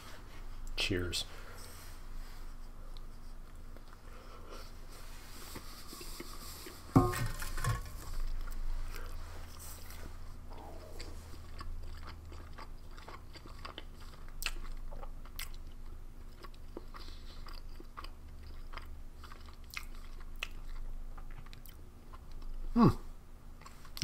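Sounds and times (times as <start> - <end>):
person chewing food: 2.5 - 4.8, 5.4 - 22.7
low hum: 6.9 - 13.0.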